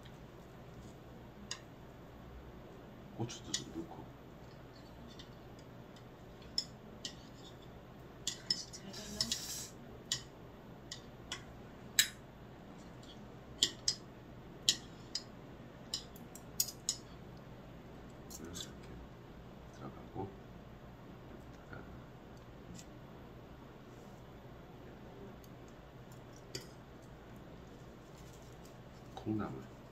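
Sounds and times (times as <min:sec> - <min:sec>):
chopsticks clicking on dishes: 0:01.4 - 0:01.7, 0:03.5 - 0:03.8, 0:04.4 - 0:10.3, 0:10.9 - 0:12.2, 0:13.0 - 0:15.3, 0:15.9 - 0:17.1.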